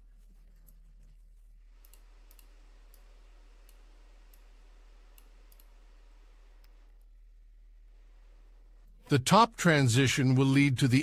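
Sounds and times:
low electrical hum: 0.0s - 11.0s
computer mouse clicks: 1.8s - 4.5s, 5.1s - 5.8s.

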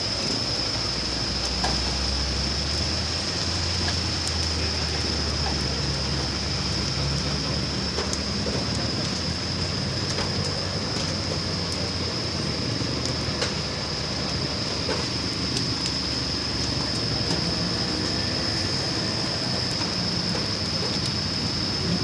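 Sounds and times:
fire engine pump rumble and whine: 0.0s - 22.0s
sharp cracks from burning building: 7.2s - 12.2s.

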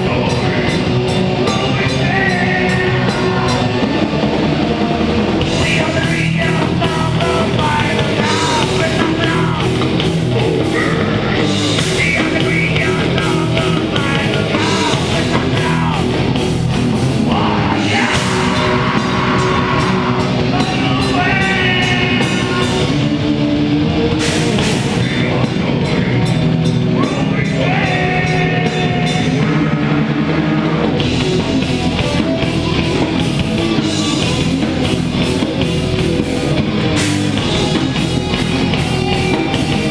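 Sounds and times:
person singing into a microphone: 0.0s - 4.0s, 5.5s - 16.2s, 17.3s - 23.0s, 27.0s - 30.8s
heavy metal band playing: 0.0s - 39.9s.

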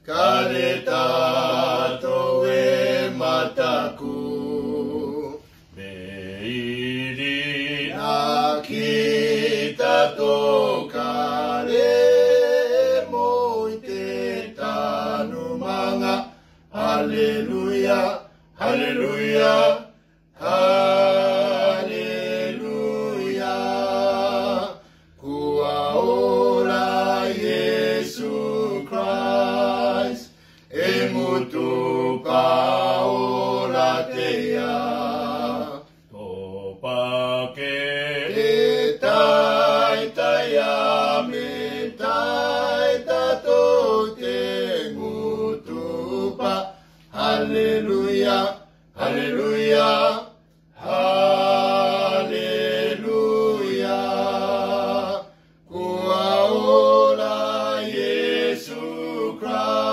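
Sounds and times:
men singing a hymn unaccompanied: 0.0s - 59.9s
singers breathing: 16.2s - 16.7s, 24.8s - 25.2s, 30.3s - 30.7s, 46.7s - 47.1s.

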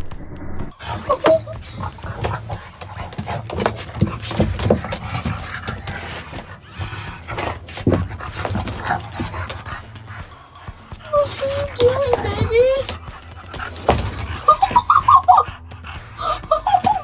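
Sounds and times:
dog breathing hard: 0.8s - 17.0s
dog scuffing against plastic: 1.0s - 6.5s.

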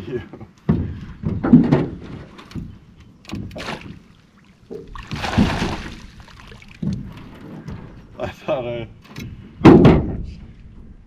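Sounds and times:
fish splashing in shallow water: 3.5s - 7.0s.

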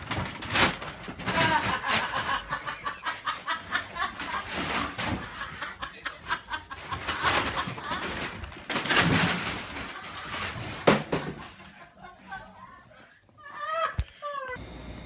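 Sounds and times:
woman laughing hard: 1.3s - 8.3s.

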